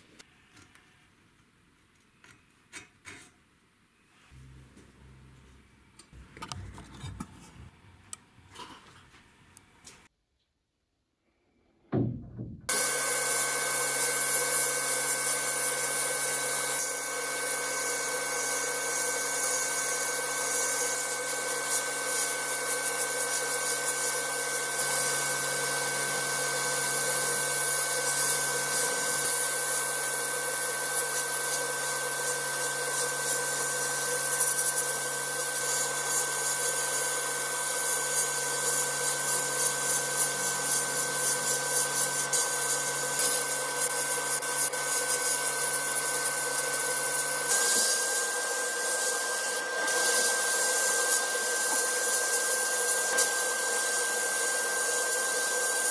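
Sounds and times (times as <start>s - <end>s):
low hum: 11.3s - 12.7s
sandblasting gun hissing: 12.7s - 55.9s.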